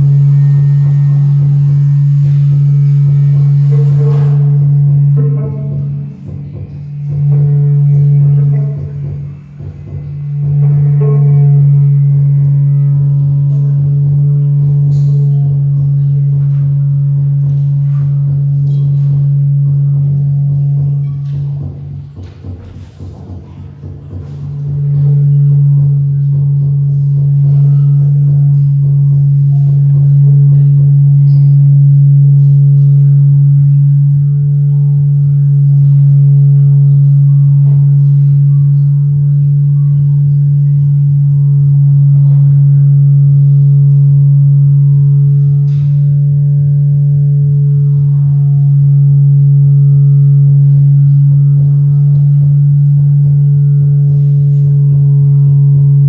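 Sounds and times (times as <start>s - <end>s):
ambient drone music: 0.0s - 56.0s.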